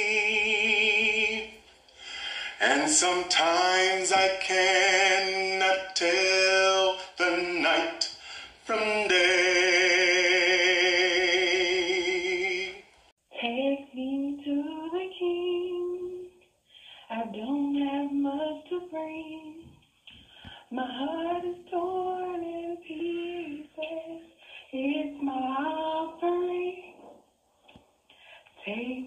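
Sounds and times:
woman singing with vibrato: 0:00.0 - 0:01.6, 0:08.7 - 0:16.4, 0:17.1 - 0:19.7, 0:20.7 - 0:27.1, 0:28.6 - 0:29.0.

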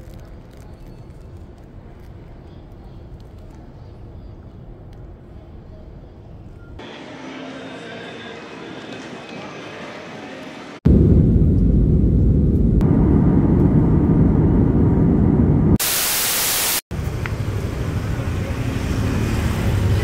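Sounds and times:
street traffic: 0:00.2 - 0:10.8, 0:16.9 - 0:20.0
airliner cabin rumble: 0:10.8 - 0:15.8
loud even hiss: 0:15.8 - 0:16.8.

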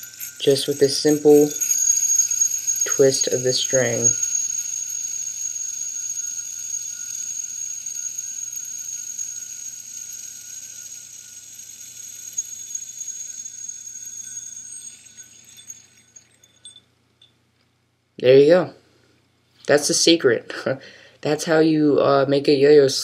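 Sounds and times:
spinning yo-yo whine: 0:00.0 - 0:17.3.

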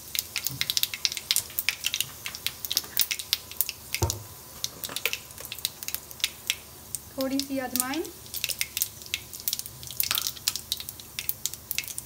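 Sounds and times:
soft sizzle: 0:00.0 - 0:12.0
spices popping in hot oil: 0:00.0 - 0:12.0
dull knock: 0:04.0 - 0:04.3.

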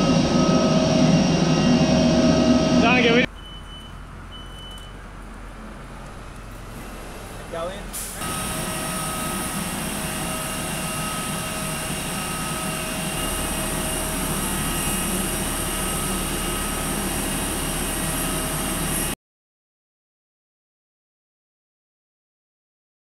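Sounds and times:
jet engine whine and rumble: 0:00.0 - 0:03.3, 0:06.8 - 0:19.2.

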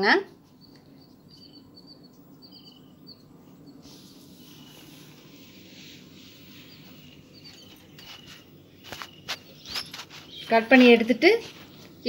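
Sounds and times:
low steady hum: 0:00.0 - 0:12.0
small birds chirping: 0:00.0 - 0:12.0
soft hiss: 0:03.4 - 0:12.0.

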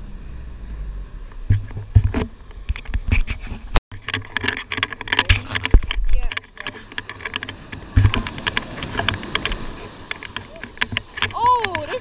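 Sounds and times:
vehicle engine and tyre rumble: 0:00.0 - 0:12.0
crackling noise: 0:00.6 - 0:12.0
knocks and rattles: 0:01.5 - 0:12.0
surf washing on shore: 0:04.0 - 0:12.0.

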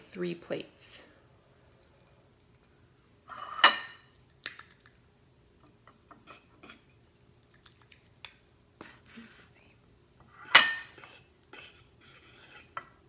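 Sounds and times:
fork scraping on ceramic plate: 0:10.3 - 0:13.0.

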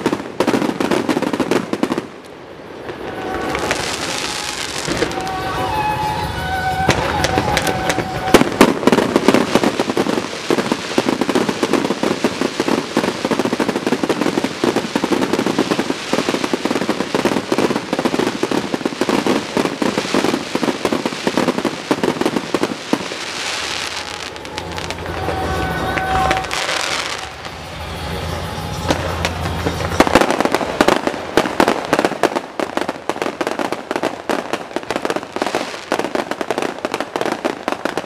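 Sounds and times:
firework crackling: 0:00.0 - 0:38.0
fireworks high tones: 0:00.0 - 0:38.0
loud firework bang: 0:02.8 - 0:38.0.

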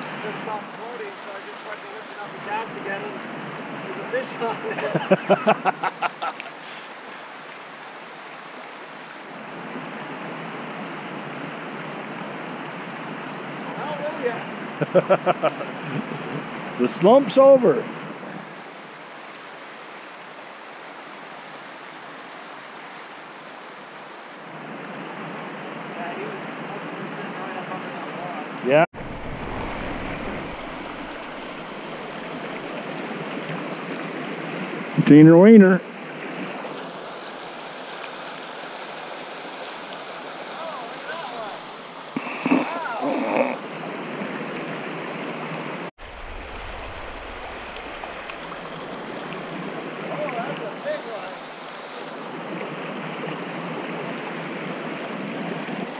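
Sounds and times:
creek water rushing over rocks: 0:00.0 - 0:55.9
low rumble: 0:29.0 - 0:32.4, 0:46.0 - 0:48.9.

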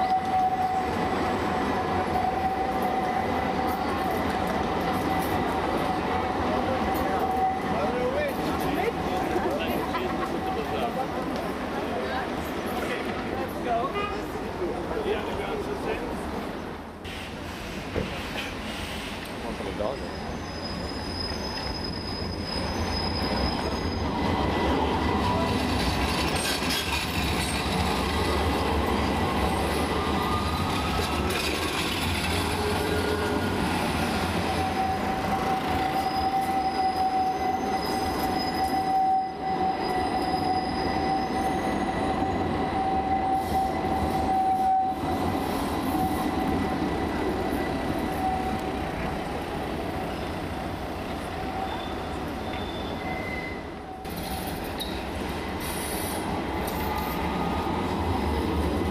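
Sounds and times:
steel wheels squealing on rails: 0:00.0 - 0:16.2, 0:17.0 - 0:58.9
trams passing: 0:00.0 - 0:58.9.

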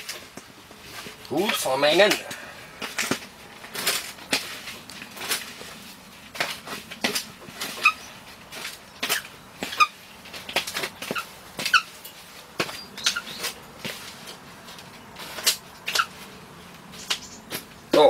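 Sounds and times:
hands scraping and rustling material: 0:00.0 - 0:18.0
short high squeaks: 0:07.6 - 0:08.2, 0:09.0 - 0:10.0, 0:11.0 - 0:12.1, 0:12.7 - 0:13.6, 0:15.4 - 0:16.3.

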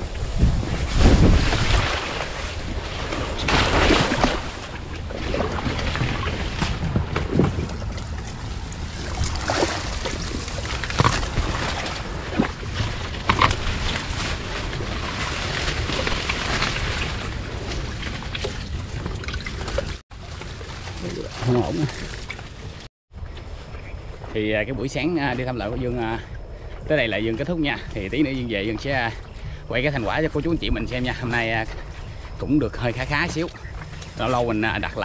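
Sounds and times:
wind buffeting microphone: 0:00.0 - 0:20.0
leaves and stems rustling: 0:00.0 - 0:22.8
water sloshing: 0:00.0 - 0:22.9.

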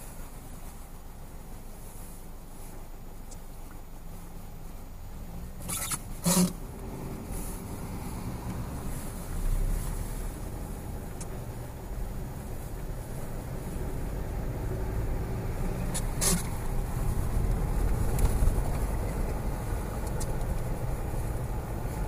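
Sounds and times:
car road and engine noise: 0:00.0 - 0:22.0.

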